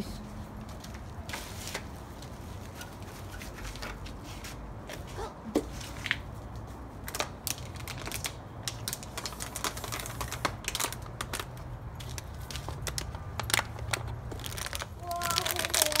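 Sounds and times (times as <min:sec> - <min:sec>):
puppy chewing plastic bottle: 0:07.2 - 0:16.0.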